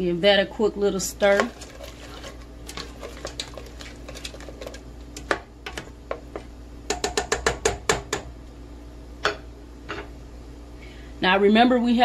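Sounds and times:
plastic spoon stirring in pot: 1.1s - 6.5s.

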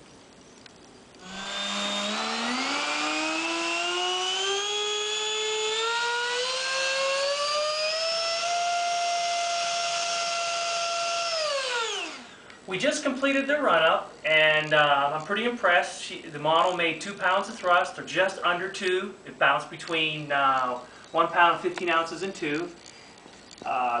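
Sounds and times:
electric ducted fan whining: 0.0s - 24.0s.

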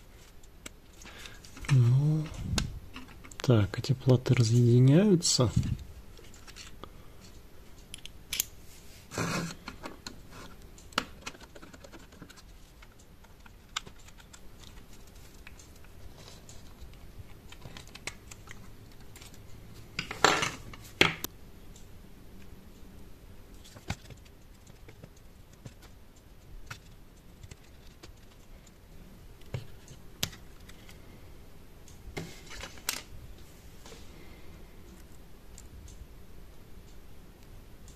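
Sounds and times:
small plastic parts clicking: 5.7s - 8.5s, 10.8s - 20.2s, 23.6s - 28.8s.

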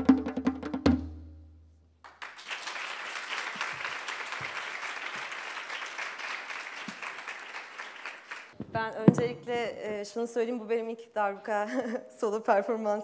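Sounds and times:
audience applauding: 2.0s - 8.6s.

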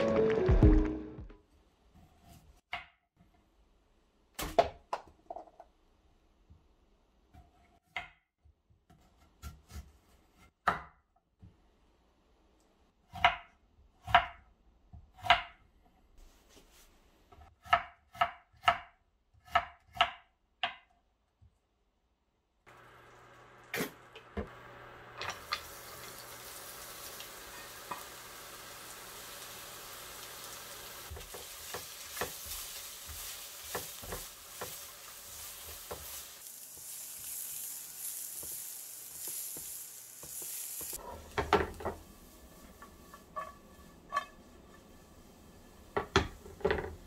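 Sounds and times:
food sizzling in a frying pan: 22.7s - 43.9s.

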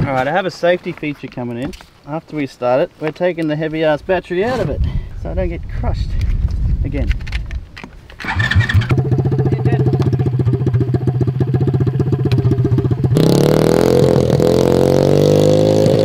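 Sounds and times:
engine revving: 8.2s - 16.0s
small petrol engine cranking: 8.2s - 16.0s.

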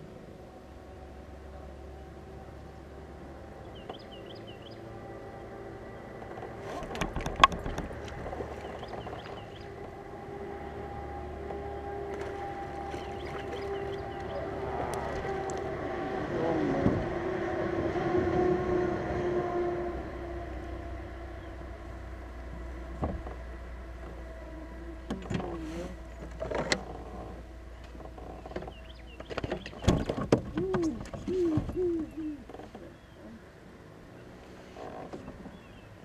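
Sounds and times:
motorboat engine droning: 0.0s - 36.0s
bird chirping: 3.6s - 6.1s, 8.5s - 9.8s, 12.9s - 14.6s, 27.7s - 30.0s, 35.2s - 36.0s.

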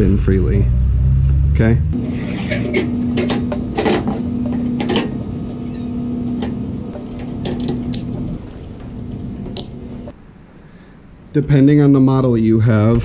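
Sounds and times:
low hum: 0.0s - 10.1s.

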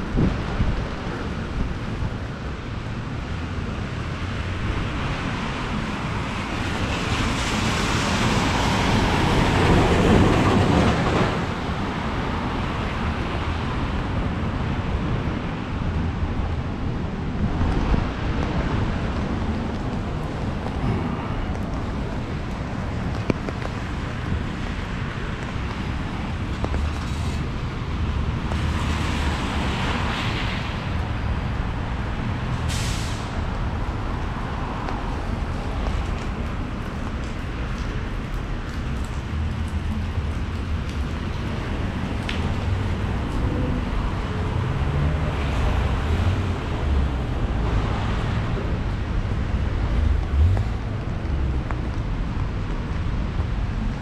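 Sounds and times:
low traffic rumble: 0.0s - 54.0s
tyres hissing on wet road: 0.0s - 54.0s
short sharp hiss: 32.7s - 33.3s.

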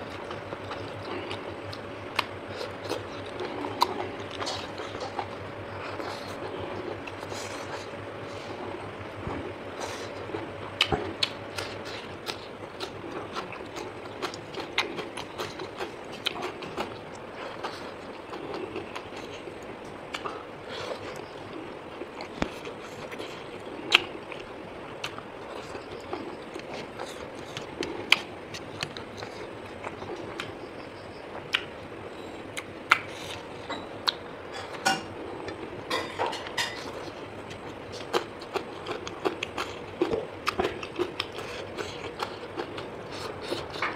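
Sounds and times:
person chewing and crunching: 0.0s - 43.9s.

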